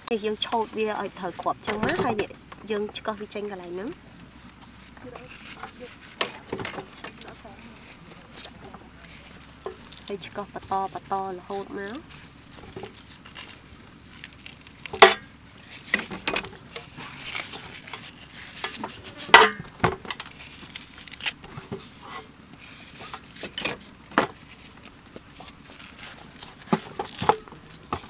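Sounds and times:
spoons scraping watermelon rind: 0:00.4 - 0:19.6.

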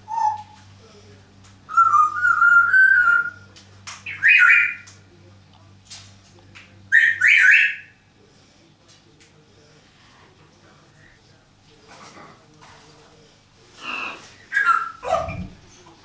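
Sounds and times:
parrot whistling: 0:01.7 - 0:03.5, 0:04.1 - 0:04.8, 0:06.9 - 0:07.9, 0:13.9 - 0:15.4.

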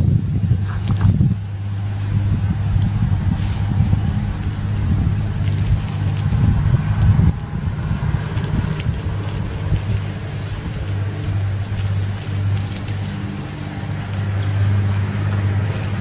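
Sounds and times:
campfire crackling: 0:00.0 - 0:16.0
low hum: 0:00.0 - 0:16.0.

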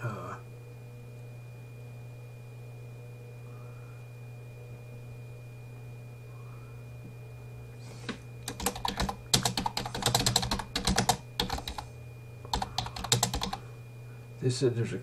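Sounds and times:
low electrical hum: 0:00.0 - 0:15.0
typing on computer keyboard: 0:08.5 - 0:11.8, 0:12.5 - 0:13.6.

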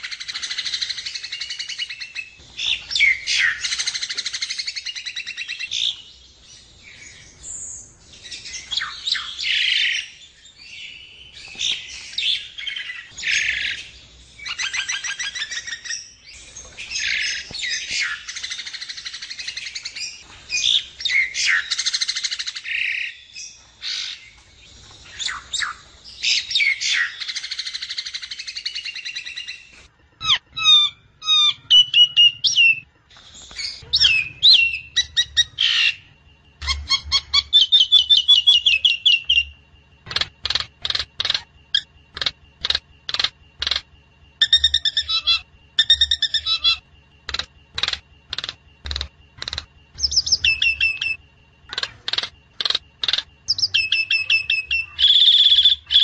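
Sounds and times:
bird whistled notes: 0:33.4 - 0:36.0, 0:50.0 - 0:51.2, 0:53.5 - 0:56.0
bird harsh chattering and squawks: 0:36.6 - 0:39.4, 0:40.0 - 0:43.8, 0:44.4 - 0:48.6, 0:49.4 - 0:56.0.

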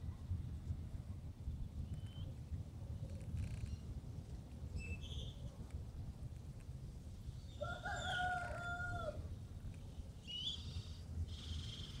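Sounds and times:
rooster crowing: 0:07.6 - 0:09.2.

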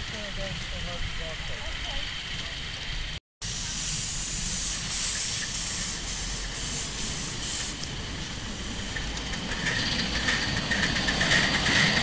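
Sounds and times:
steam locomotive hissing steam: 0:03.4 - 0:12.0.

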